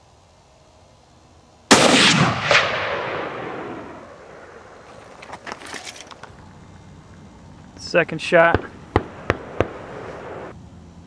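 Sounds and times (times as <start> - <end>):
rifle shot with echo: 1.7 - 4.8, 8.4 - 10.5.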